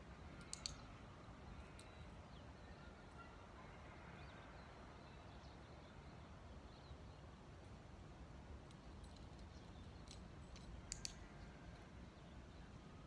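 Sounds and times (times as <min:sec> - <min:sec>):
sharp clicks: 0:00.4 - 0:00.8, 0:10.1 - 0:11.2.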